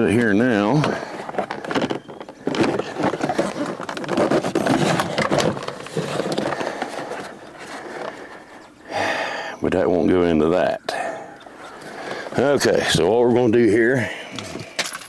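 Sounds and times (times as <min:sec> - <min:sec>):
plastic trim panel scraping: 0:00.8 - 0:08.6.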